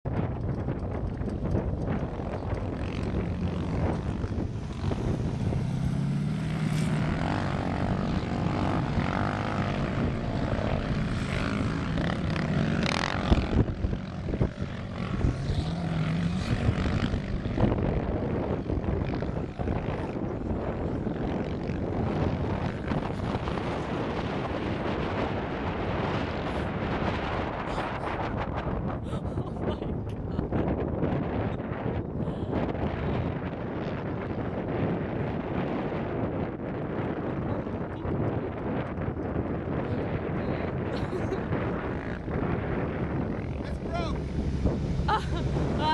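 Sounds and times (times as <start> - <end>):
distant engine revving: 1.9 - 20.0.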